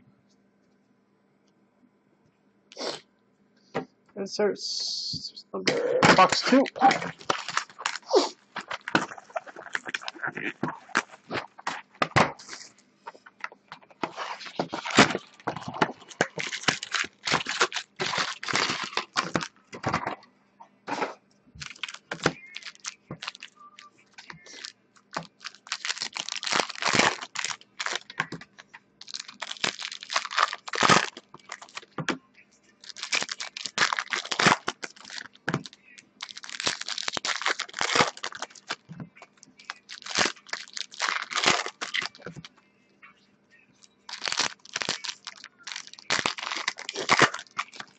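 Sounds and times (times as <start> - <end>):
foil wrappers tearing and crumpling: 6.1 - 11.8, 14.0 - 19.5, 21.6 - 23.6, 24.2 - 32.2, 32.8 - 38.9, 39.6 - 42.5, 44.1 - 47.9.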